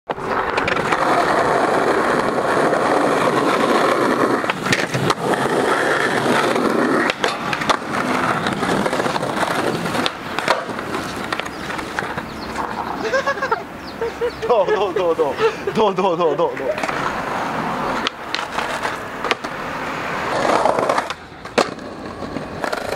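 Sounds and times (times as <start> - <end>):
skateboard clacking on pavement: 0.1 - 13.6, 16.4 - 22.9
skateboard rolling over tiles: 0.1 - 13.6, 16.7 - 22.9.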